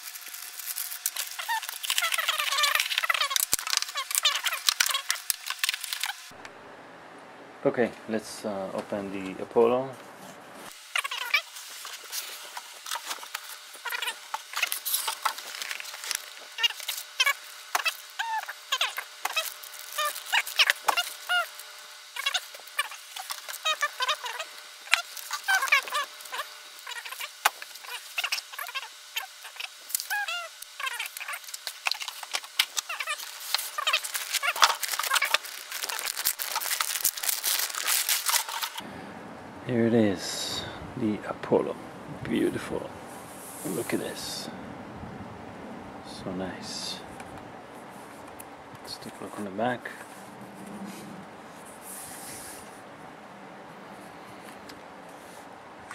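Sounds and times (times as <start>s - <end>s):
cardboard rustling: 0.0s - 6.2s, 11.0s - 21.5s, 22.2s - 38.8s
foam blocks squeaking: 0.0s - 6.3s, 10.7s - 38.8s
cardboard and foam rubbing: 22.2s - 38.8s.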